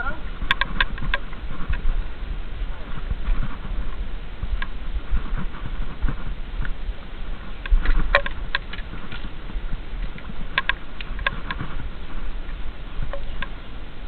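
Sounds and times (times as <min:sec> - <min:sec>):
water sloshing: 0:07.7 - 0:13.6.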